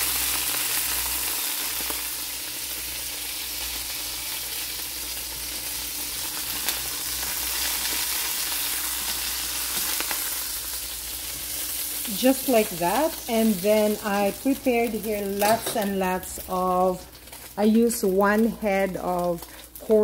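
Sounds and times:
chicken sizzling in hot oil: 0.0s - 20.0s.

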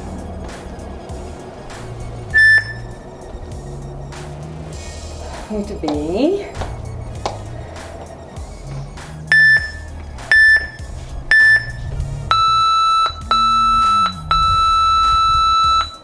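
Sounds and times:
long low timer beep: 2.3s - 3.0s, 9.3s - 16.0s
interval timer short beeps: 2.4s - 3.0s, 9.3s - 16.0s.

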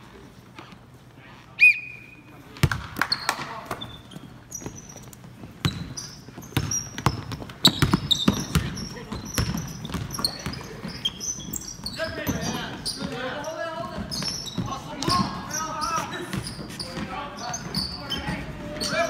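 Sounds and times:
sneaker squeaks: 0.2s - 19.0s
basketball bouncing on hardwood: 2.6s - 2.9s, 5.5s - 11.0s.

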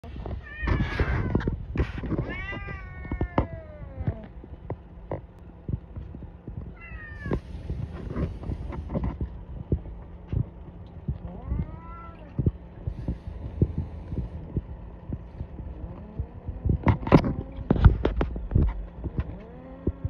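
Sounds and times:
cat meowing: 2.2s - 4.2s, 11.2s - 12.4s.

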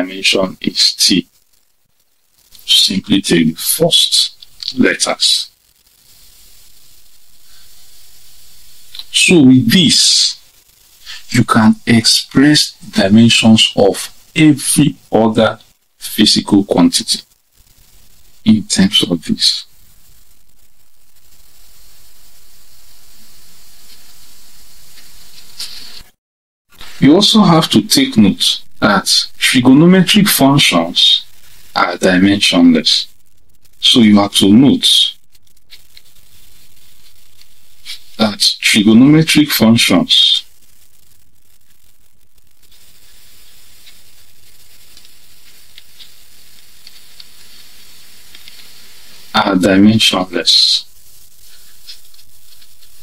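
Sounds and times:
steady background hiss: 0.0s - 53.0s.

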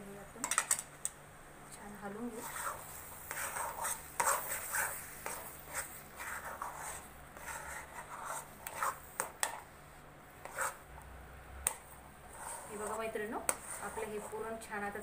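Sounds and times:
spatula scraping metal pan: 2.4s - 9.6s, 10.4s - 10.8s, 12.3s - 14.5s.

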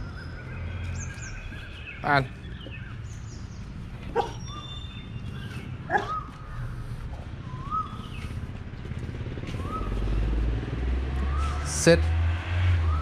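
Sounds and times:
steady low hum: 2.3s - 11.4s.

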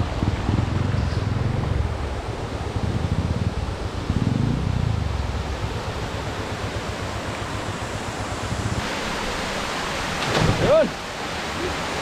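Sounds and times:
wind buffeting microphone: 0.0s - 8.9s
small waterfall rushing: 0.0s - 12.0s.

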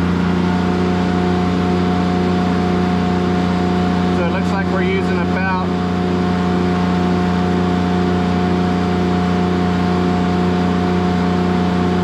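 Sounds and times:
diesel generator running: 0.0s - 12.0s.

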